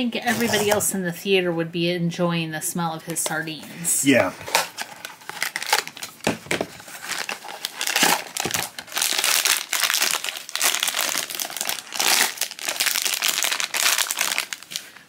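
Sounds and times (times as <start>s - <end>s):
foil bag crinkling and tearing: 4.5s - 15.0s.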